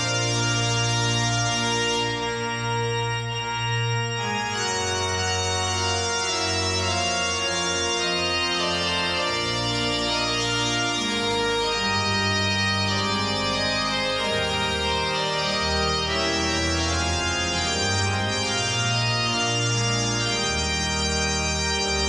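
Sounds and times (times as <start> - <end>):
organ music: 0.0 - 22.0.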